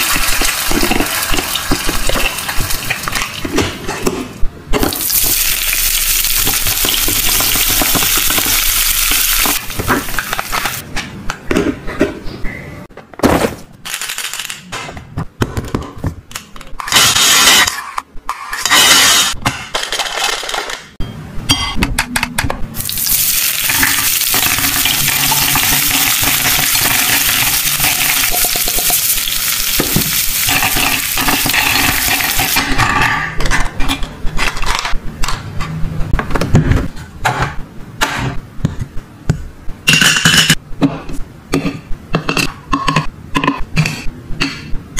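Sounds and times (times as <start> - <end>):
toy cooker sizzling hiss: 5.0 - 10.2, 22.8 - 32.6
plastic toys clattering: 19.5 - 21.0.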